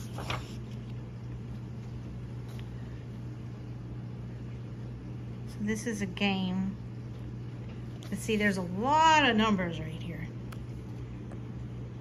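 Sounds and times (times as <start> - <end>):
paper page rustling: 0.0 - 2.8
steady low hum: 0.0 - 12.0.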